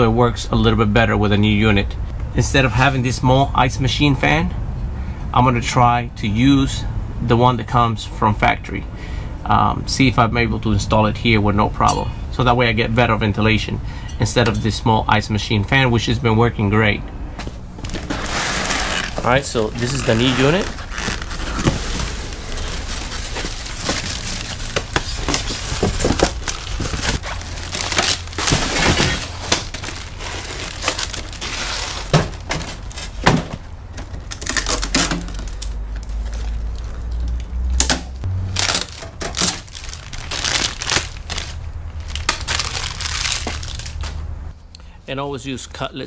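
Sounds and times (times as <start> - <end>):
knocks and scrapes: 17.4 - 27.4
box dragging: 17.8 - 32.1
plastic wrap crinkling: 17.8 - 33.2, 38.5 - 44.2
tape tearing: 17.8 - 33.2, 34.1 - 44.2.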